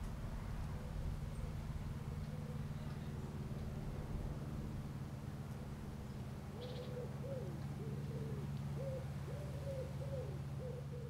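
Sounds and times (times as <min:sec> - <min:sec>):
steady low hum: 0:00.0 - 0:11.0
bird hooting: 0:06.6 - 0:11.0.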